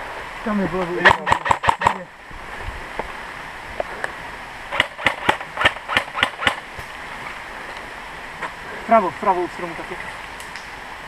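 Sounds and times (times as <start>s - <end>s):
airsoft rifle shots: 1.0s - 2.0s, 4.7s - 6.6s.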